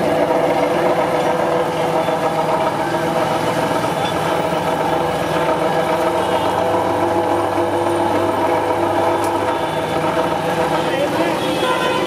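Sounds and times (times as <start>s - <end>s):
sugarcane crusher humming: 0.0s - 12.0s.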